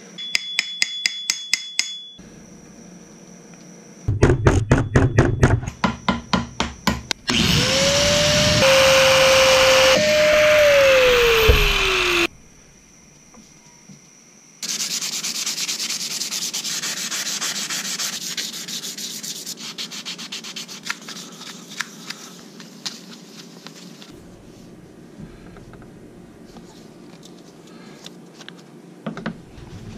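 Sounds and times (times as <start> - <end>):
angle grinder slowing down: 7.3 - 12.3
sandpaper rubbing wood: 14.6 - 22.4.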